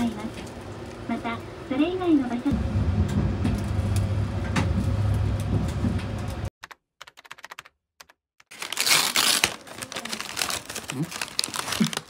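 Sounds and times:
packaging rustling: 8.5s - 12.0s.

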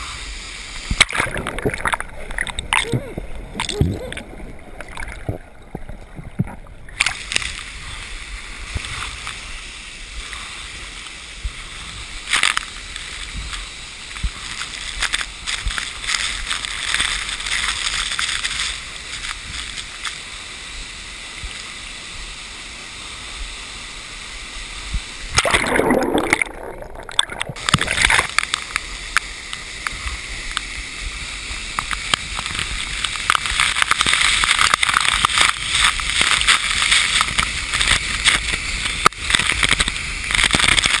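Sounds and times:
muffled underwater water sound: 0.0s - 41.0s
water sloshing and splashing: 1.0s - 7.7s, 25.3s - 28.6s
loud splash: 25.3s - 28.3s.

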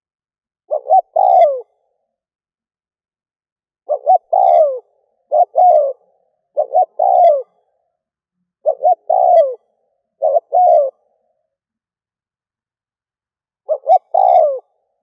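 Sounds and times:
dove cooing: 0.7s - 1.8s, 3.8s - 7.7s, 8.6s - 11.4s, 13.6s - 15.0s.

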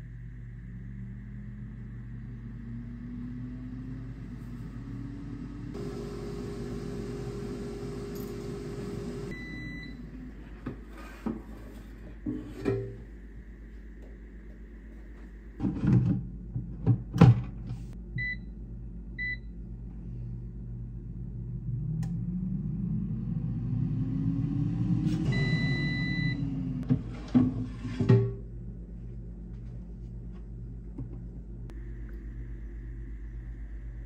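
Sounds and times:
air fryer fan whirring: 0.4s - 10.2s, 20.6s - 27.7s
control panel beeps: 25.3s - 26.4s
long beep: 25.3s - 26.5s.

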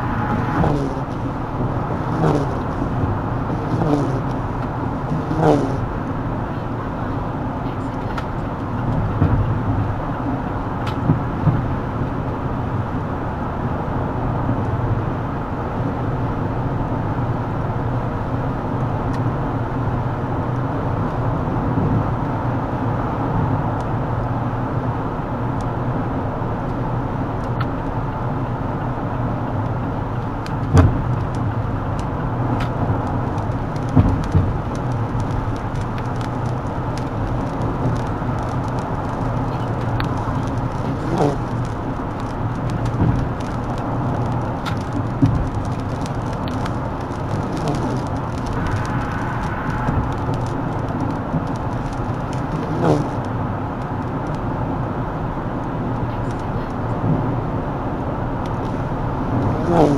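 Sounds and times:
car tyre noise on wet road: 0.0s - 59.9s.

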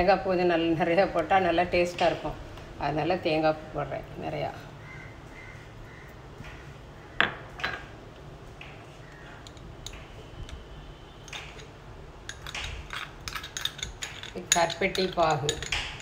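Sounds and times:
spoon and bowl clinking on plastic tub: 12.3s - 16.0s.

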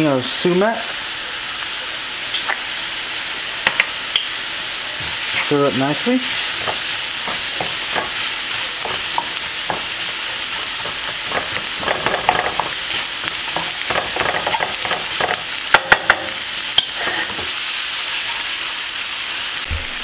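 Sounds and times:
vegetables sizzling in oil: 0.0s - 20.0s
wooden spatula scraping pan: 6.3s - 15.5s, 16.8s - 17.6s.

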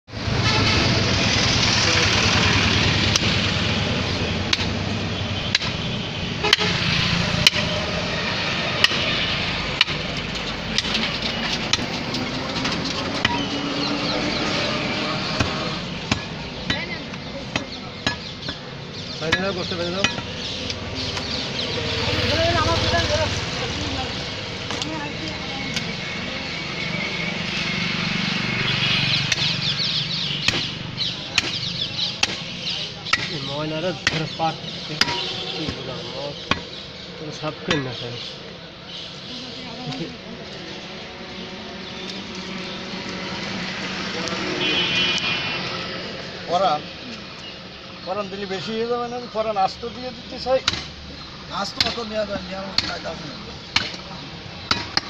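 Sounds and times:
steady background noise: 0.1s - 55.0s
cleaver chopping on wooden block: 15.3s - 18.6s, 30.4s - 33.4s, 34.0s - 34.4s, 50.6s - 51.0s, 53.7s - 54.1s, 54.7s - 55.0s.

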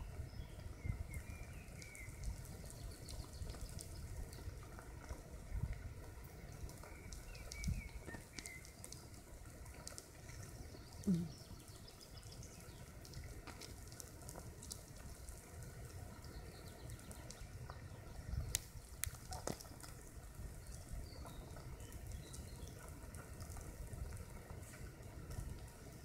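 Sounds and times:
ants scurrying with tiny clicks: 1.2s - 5.3s, 6.5s - 25.9s
faint bird chirps: 10.3s - 12.9s.

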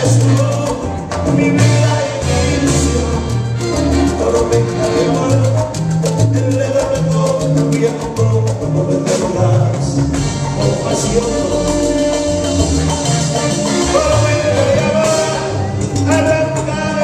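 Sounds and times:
horns: 0.0s - 5.7s, 10.1s - 17.0s
hand percussion: 0.0s - 17.0s
salsa band playing: 0.0s - 17.0s.

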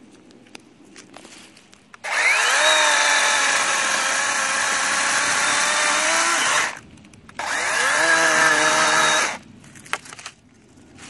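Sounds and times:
chainsaw whining: 2.0s - 6.8s, 7.4s - 9.4s
log knocking and crackling: 9.6s - 10.4s.

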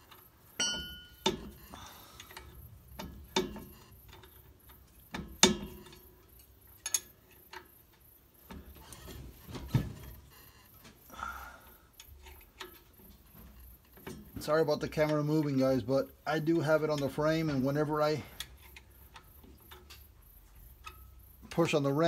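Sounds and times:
wrench clicking on metal: 0.0s - 8.2s, 18.3s - 21.8s
sharp metal knocks: 0.6s - 1.6s, 2.9s - 4.3s, 5.0s - 6.1s.

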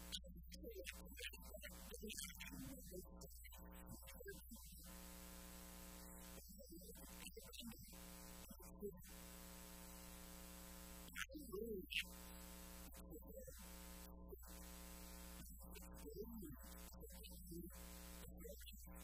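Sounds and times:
faint voice: 0.0s - 4.9s, 11.2s - 12.1s, 15.4s - 19.0s
electrical hum with buzz: 0.0s - 19.0s.

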